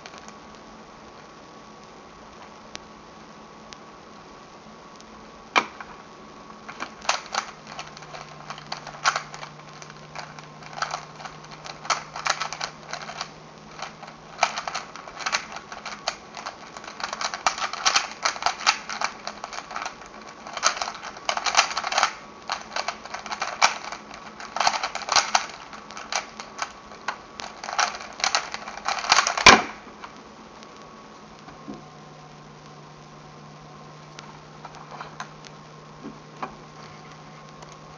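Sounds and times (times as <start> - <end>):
plastic puzzle cube clicking: 6.7 - 30.2.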